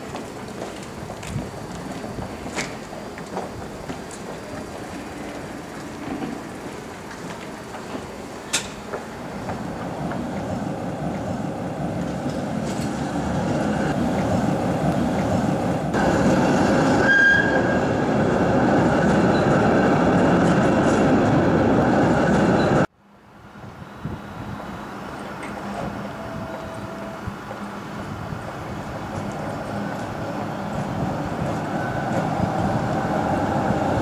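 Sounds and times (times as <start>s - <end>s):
tram motors and wheels rumbling: 0.0s - 34.0s
high wheel squeal: 16.9s - 17.8s.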